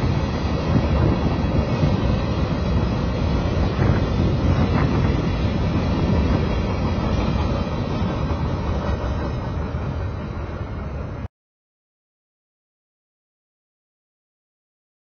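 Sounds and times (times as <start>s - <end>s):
wind on microphone: 0.0s - 11.0s
freight train rumbling past: 0.0s - 11.3s.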